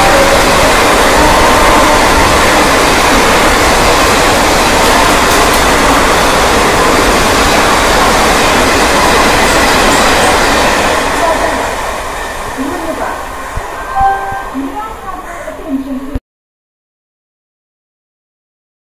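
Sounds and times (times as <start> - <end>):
wheels rumbling on rails: 0.0 - 13.8
train coaches rushing past: 0.0 - 15.6.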